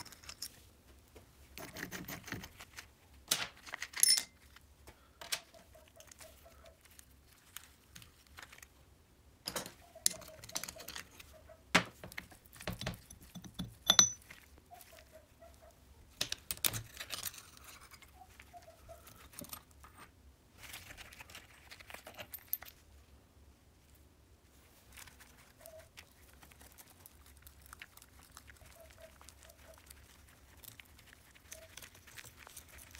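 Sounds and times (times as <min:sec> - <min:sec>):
metal clinks and scrapes: 0:00.0 - 0:00.6, 0:03.9 - 0:04.5, 0:09.5 - 0:11.3, 0:12.8 - 0:14.4, 0:16.6 - 0:18.1.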